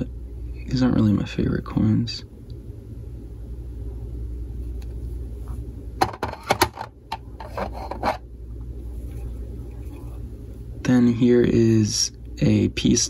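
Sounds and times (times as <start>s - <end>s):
plastic scraping rubs: 7.4s - 8.2s.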